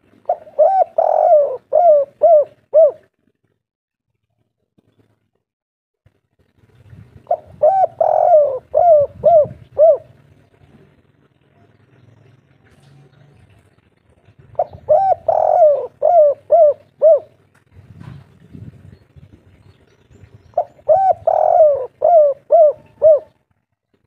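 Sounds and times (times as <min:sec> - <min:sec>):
dove cooing: 0:00.0 - 0:03.2, 0:07.2 - 0:11.0, 0:14.2 - 0:17.5, 0:20.6 - 0:23.4.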